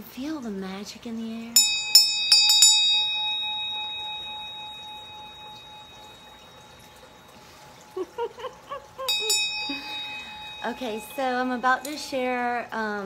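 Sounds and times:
hand bell ringing: 1.6s - 7.9s, 9.1s - 12.6s
person giggling: 8.0s - 10.0s.

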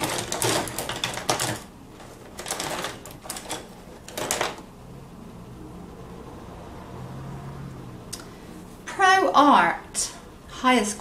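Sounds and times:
paintbrushes clattering: 0.0s - 4.7s.

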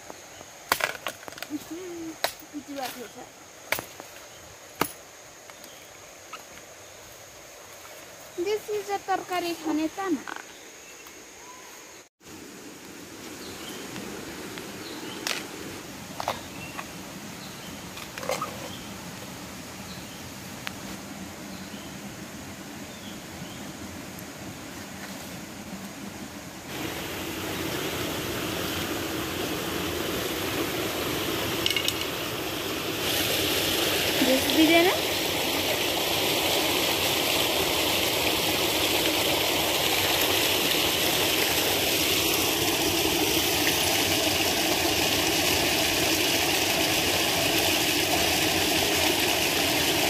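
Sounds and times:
steady background hiss: 0.0s - 50.0s
faint bird chirps: 10.2s - 12.1s
stream rushing over rocks: 12.2s - 50.0s.

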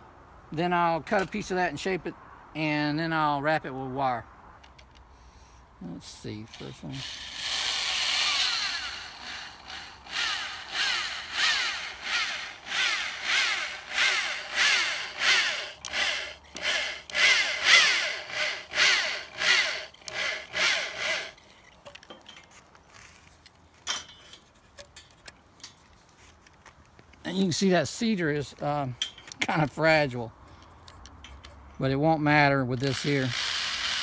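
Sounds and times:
electric drill driving screw into wood: 6.5s - 21.4s, 32.8s - 34.0s.

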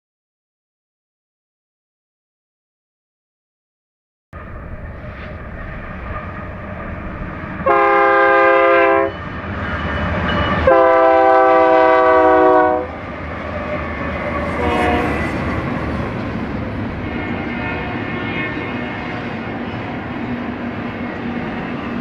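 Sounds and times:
freight cars rumbling on rails: 4.4s - 22.0s
train horn blasts: 7.6s - 9.2s, 10.4s - 13.0s, 14.3s - 15.5s.

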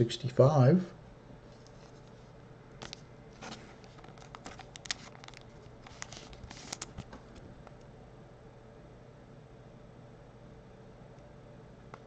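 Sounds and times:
trading card rustling and clicking: 2.8s - 7.3s.

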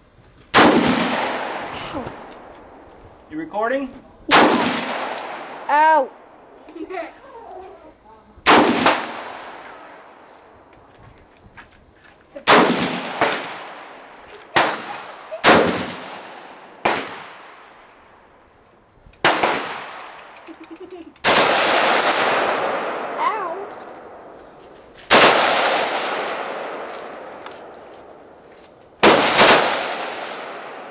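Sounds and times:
rifle shots with echo: 0.6s - 2.3s, 4.3s - 5.7s, 8.4s - 10.0s, 12.4s - 17.7s, 19.2s - 20.4s, 21.2s - 24.3s, 25.1s - 28.3s, 29.0s - 30.9s.

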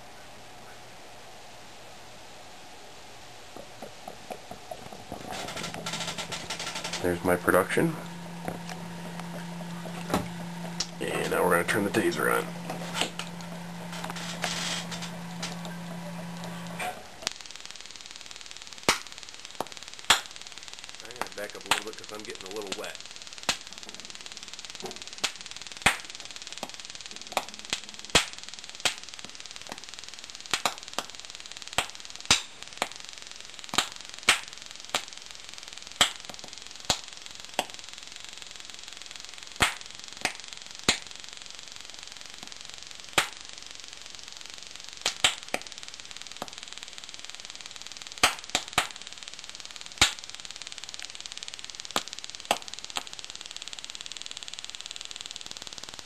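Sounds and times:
steady faint hiss: 0.0s - 56.0s
sharp gas pops: 3.5s - 17.5s, 18.7s - 22.0s, 22.7s - 33.0s, 33.7s - 35.2s, 35.9s - 37.8s, 39.5s - 41.2s, 42.3s - 43.4s, 45.0s - 45.7s, 48.1s - 49.1s, 49.9s - 54.4s.

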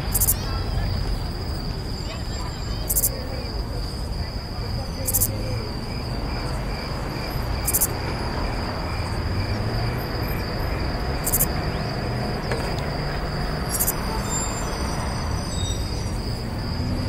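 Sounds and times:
insect-like trilling: 0.1s - 0.6s, 2.6s - 3.2s, 5.0s - 5.4s, 7.6s - 7.9s, 11.2s - 11.8s, 13.7s - 16.1s.

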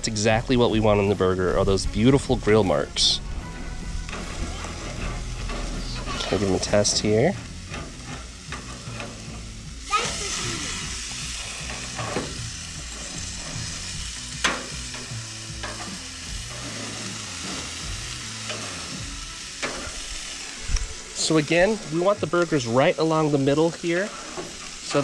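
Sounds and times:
patties sizzling on grill: 0.0s - 25.0s
metal tongs clicking on grill grates: 4.0s - 9.5s, 11.4s - 17.6s, 18.4s - 20.0s.

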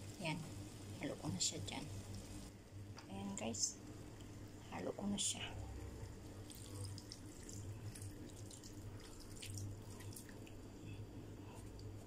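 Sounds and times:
low steady hum: 0.0s - 12.0s
sauce trickling into pot: 6.3s - 10.7s.

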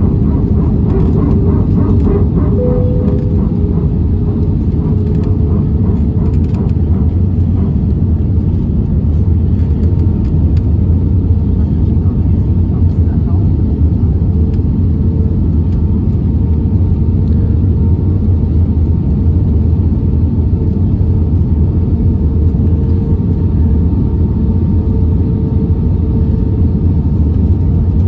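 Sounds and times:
faint steady hum: 0.0s - 9.2s
jet engines low rumble: 0.0s - 28.0s.

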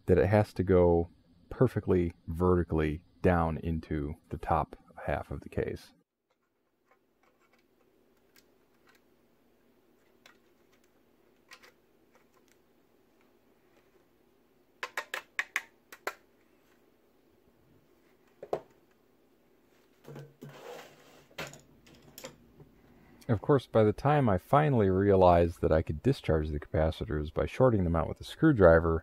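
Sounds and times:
plastic clicks and taps: 14.8s - 16.2s.

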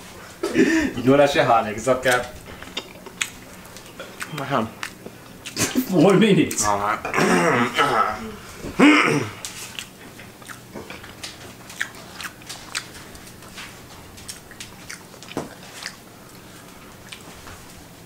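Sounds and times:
person chewing wet clicks and smacks: 2.1s - 6.8s, 9.4s - 17.3s.

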